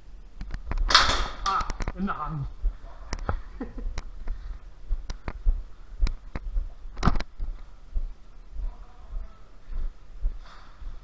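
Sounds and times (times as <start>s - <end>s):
sharp clicks and knocks: 0.4s - 2.0s, 6.0s - 7.4s.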